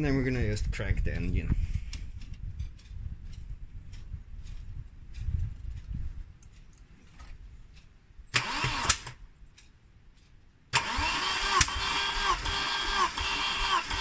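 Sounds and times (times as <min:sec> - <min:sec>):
starter motor cranking engine: 0:08.3 - 0:09.2, 0:10.7 - 0:14.0.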